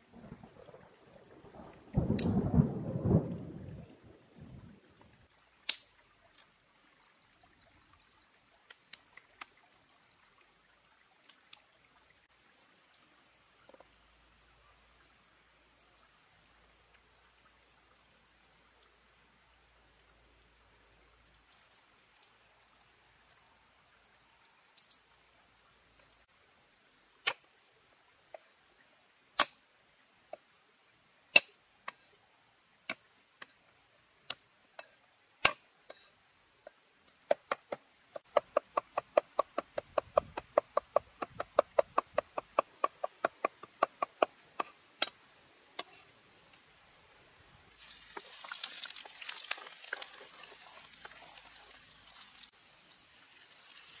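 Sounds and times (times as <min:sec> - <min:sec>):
insects droning: 0:00.0 - 0:54.0.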